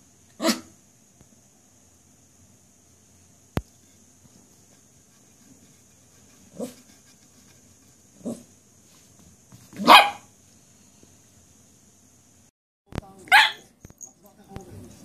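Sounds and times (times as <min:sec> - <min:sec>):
small dog barking: 0:00.4 - 0:00.8, 0:09.8 - 0:10.3, 0:13.2 - 0:13.7.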